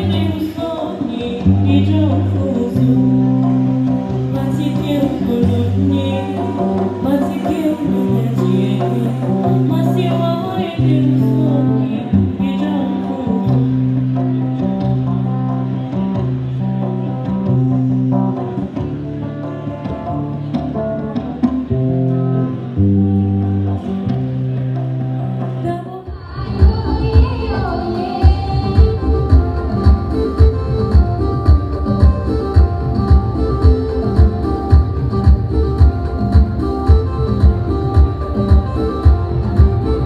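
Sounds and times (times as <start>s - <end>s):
person singing: 0.0s - 13.9s, 25.7s - 35.1s
electric guitar: 0.0s - 40.0s
held low bass notes: 26.4s - 40.0s.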